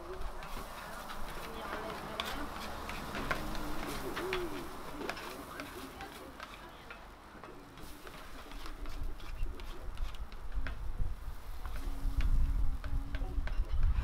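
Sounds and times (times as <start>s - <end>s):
spatulas scraping on griddle: 0.4s - 7.0s, 7.8s - 10.2s.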